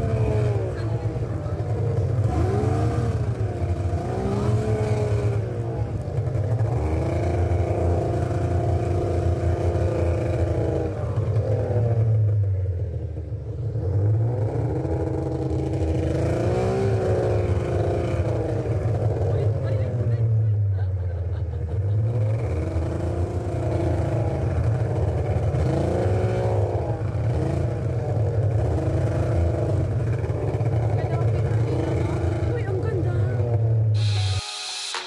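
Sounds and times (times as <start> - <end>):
snowmobile engine running: 0.0 - 12.3.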